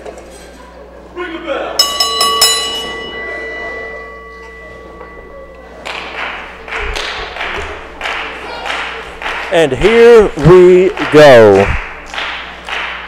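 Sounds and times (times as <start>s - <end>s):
ring bell struck: 1.8s - 9.4s
crowd cheering: 2.5s - 13.0s.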